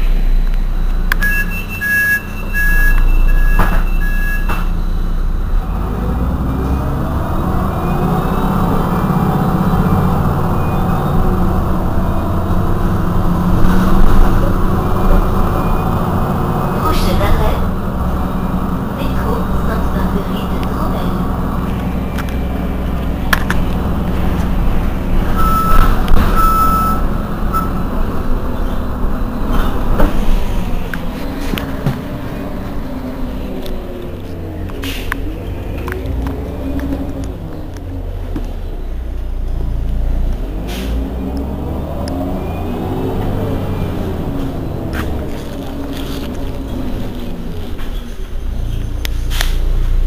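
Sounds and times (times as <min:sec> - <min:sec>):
diesel bus engine idling: 0:00.0 - 0:50.0
high warning beep: 0:01.2 - 0:04.7, 0:25.4 - 0:27.8.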